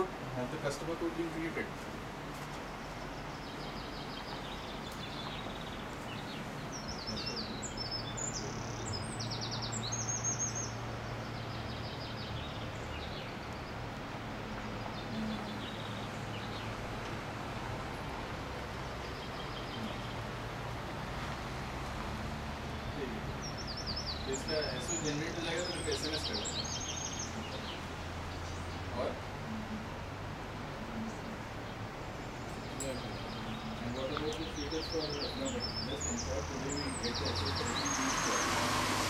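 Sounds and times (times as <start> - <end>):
small birds chirping: 0.0 - 39.0
outdoor rushing noise: 34.5 - 39.0.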